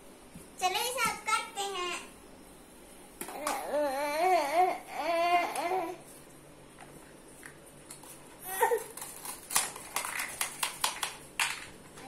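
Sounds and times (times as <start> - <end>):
plastic toy pieces clicking: 9.0 - 11.7.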